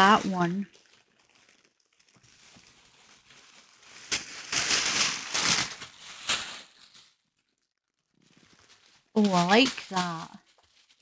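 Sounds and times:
paper and plastic crinkling: 0.0 - 11.0.

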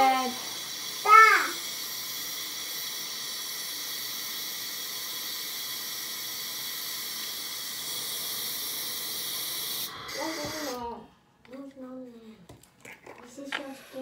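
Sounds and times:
tap water filling balloon: 0.0 - 10.9.

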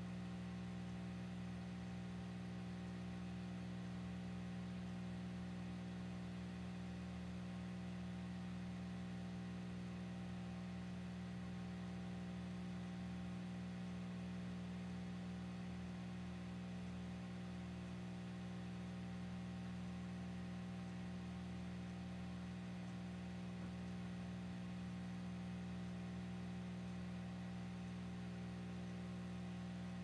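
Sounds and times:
low electrical hum: 0.0 - 30.0.

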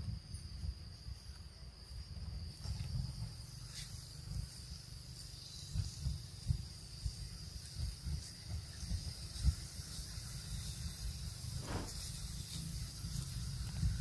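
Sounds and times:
insects droning: 0.0 - 14.0
low rumbling on microphone: 10.8 - 12.3.

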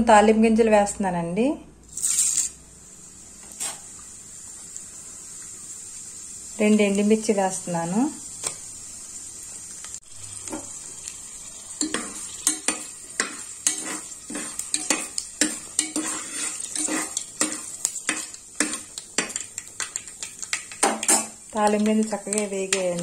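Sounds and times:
seeds sizzling in hot oil: 1.9 - 23.0
ladle scraping and knocking pot: 11.8 - 23.0.

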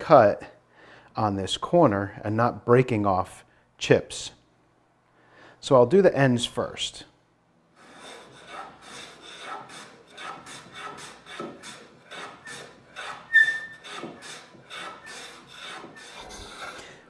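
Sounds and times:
hand plane rasping strokes: 7.8 - 17.0
high-pitched squeak: 13.2 - 13.9.

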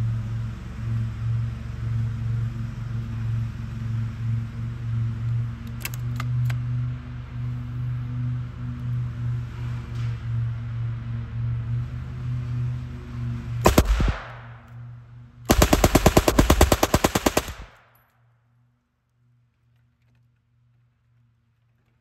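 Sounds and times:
submachine gun bursts: 13.7 - 14.4, 15.5 - 17.8.

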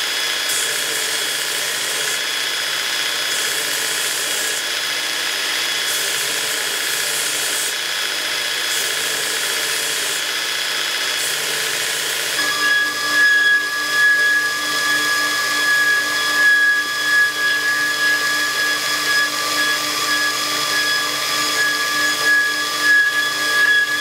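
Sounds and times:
belt grinder motor whine: 0.0 - 24.0
steel grinding hiss: 11.2 - 24.0.

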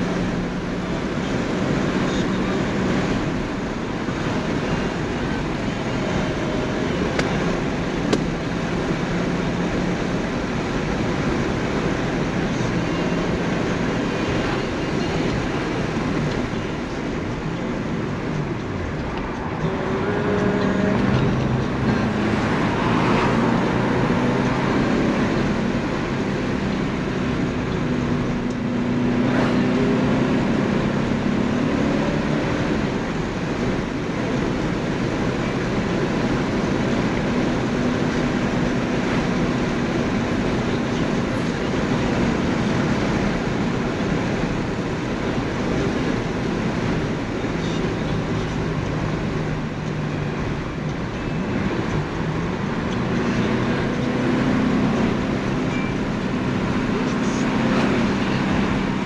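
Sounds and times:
car engine from inside cabin: 0.0 - 59.0
road and wind noise: 0.0 - 59.0.

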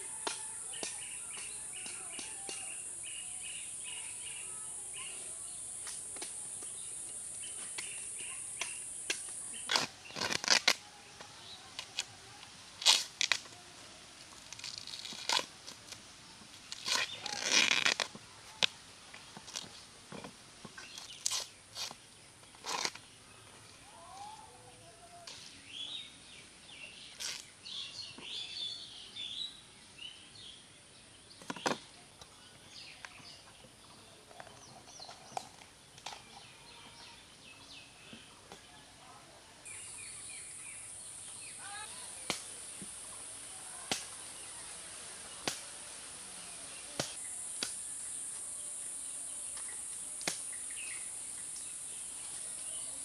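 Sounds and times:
birds chirping: 0.0 - 10.3, 39.7 - 53.0
high insect drone: 1.6 - 10.6, 39.7 - 53.0
knife cutting bamboo shoot: 7.7 - 10.8, 12.8 - 13.5, 14.4 - 15.5, 16.7 - 18.7, 22.6 - 23.0, 43.8 - 44.1, 45.4 - 45.7, 46.9 - 47.8, 50.2 - 50.5
dry husks rustling and tearing: 9.6 - 10.8, 14.2 - 16.0, 16.6 - 18.8.

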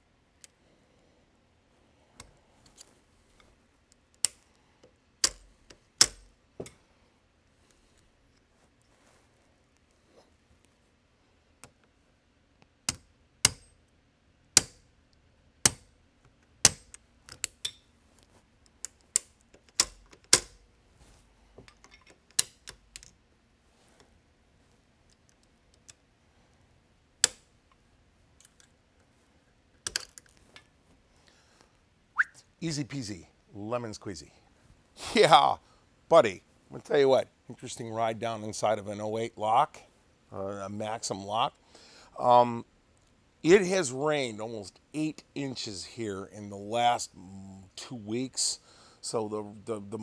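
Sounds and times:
metal gun lock clicking: 5.2 - 6.3, 18.9 - 20.6.

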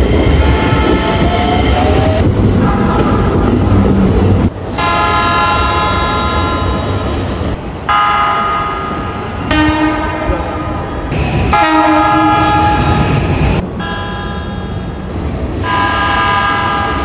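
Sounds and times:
train rumble: 0.0 - 17.0
train horn blast: 9.5 - 10.8, 11.5 - 13.2.

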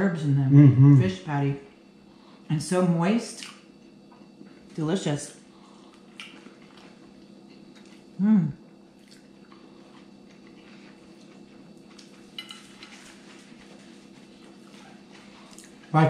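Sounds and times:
low hum: 0.0 - 16.0
person humming mm: 0.5 - 1.2, 8.2 - 8.6
people chewing: 5.5 - 16.0.

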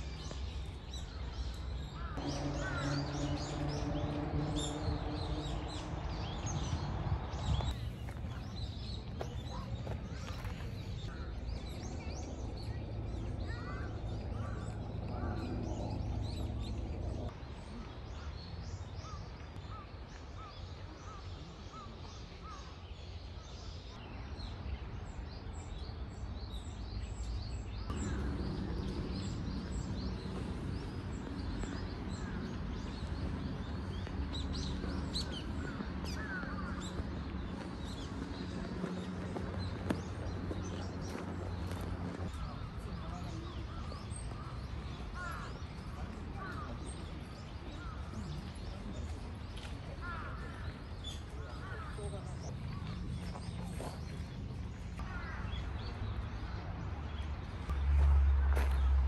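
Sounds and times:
birds chirping and calling: 0.2 - 17.2, 27.8 - 56.1
low outdoor background rumble: 0.9 - 19.8, 24.0 - 59.0.

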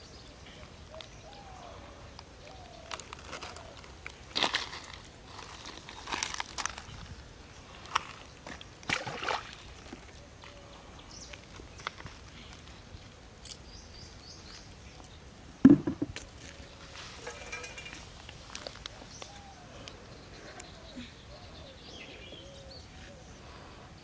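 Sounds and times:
splashing and scuffing in water: 7.9 - 10.2
loud thump: 15.6 - 16.2.

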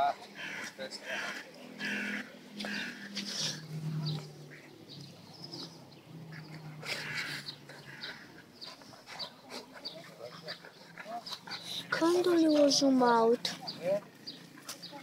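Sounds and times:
breathy snorts: 2.6 - 4.0, 6.5 - 8.5
dogs growling: 5.4 - 13.5.

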